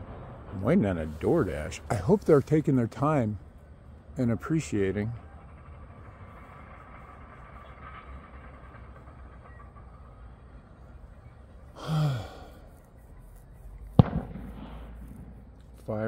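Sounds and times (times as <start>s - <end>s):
faint background rumble: 0.0s - 16.0s
man sighing: 11.8s - 12.6s.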